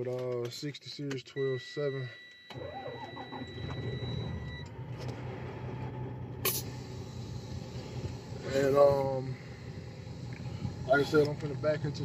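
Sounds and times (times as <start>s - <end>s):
diesel engine cranking and idling: 2.5s - 12.0s.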